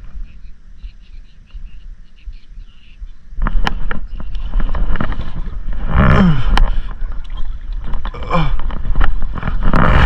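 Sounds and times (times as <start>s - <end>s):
wind on microphone: 0.0s - 10.0s
tackle and hull clicks: 3.4s - 10.0s
water splashing against kayak: 3.4s - 10.0s.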